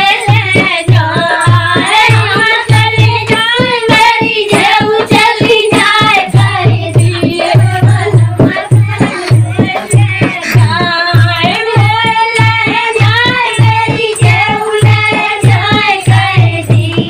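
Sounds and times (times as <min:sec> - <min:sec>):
steady drum beat: 0:00.0 - 0:17.0
woman singing high: 0:06.9 - 0:15.1.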